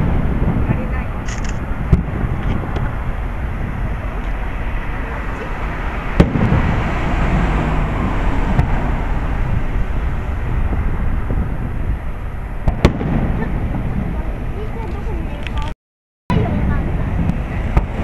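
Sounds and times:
fireworks bursting: 0.0s - 4.5s, 5.6s - 15.3s.

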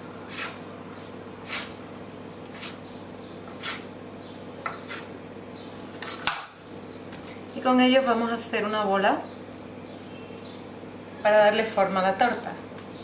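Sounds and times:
scraper chopping dough on countertop: 0.2s - 0.6s, 1.4s - 1.8s, 2.4s - 2.8s, 3.4s - 3.9s, 4.6s - 5.1s.

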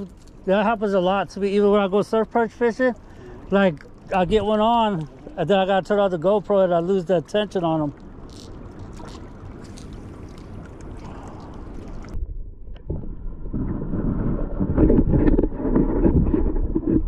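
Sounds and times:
underwater churning and sloshing: 0.0s - 17.0s
wind buffeting microphone: 4.1s - 4.9s.

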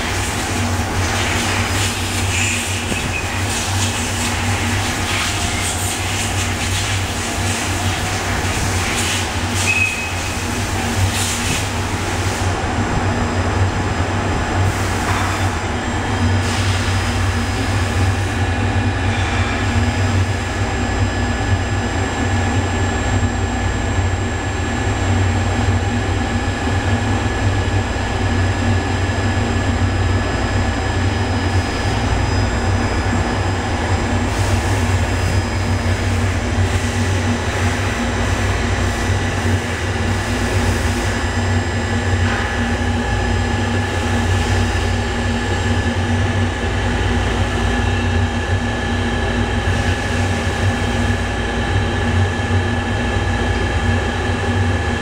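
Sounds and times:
high-pitched machining whines: 9.3s - 10.6s, 29.9s - 39.2s.

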